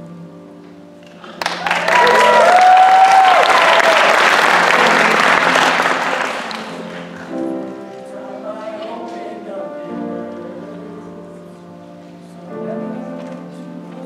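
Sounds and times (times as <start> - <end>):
audience applause: 1.0 - 7.4
whoops and cheers: 1.4 - 4.4
person singing: 4.8 - 14.0.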